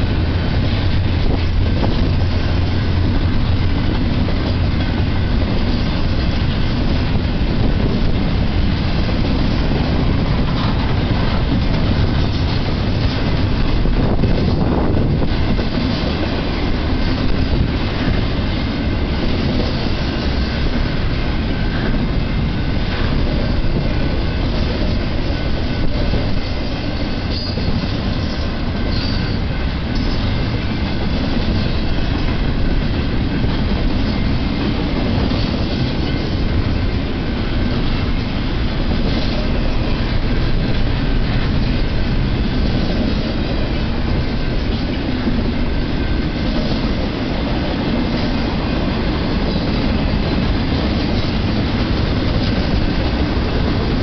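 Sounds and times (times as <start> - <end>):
freight train wheels rumbling: 0.0 - 54.0
wheel squeal: 27.2 - 30.3.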